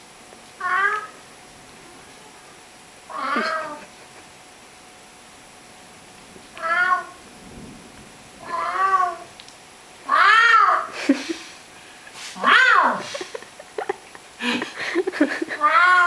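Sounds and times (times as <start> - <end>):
cat meowing: 0.6 - 1.2, 3.1 - 3.8, 6.5 - 7.2, 8.4 - 9.3, 10.0 - 10.9, 12.4 - 13.0, 15.6 - 16.0.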